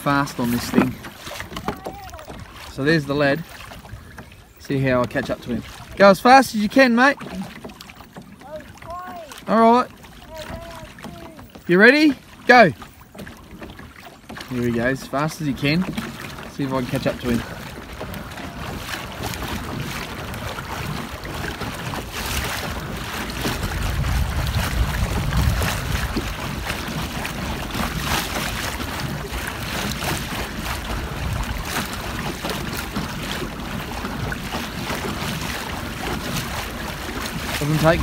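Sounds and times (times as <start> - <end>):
water rushing along kayak hull: 0.0 - 38.0
wind buffeting microphone: 17.0 - 38.0.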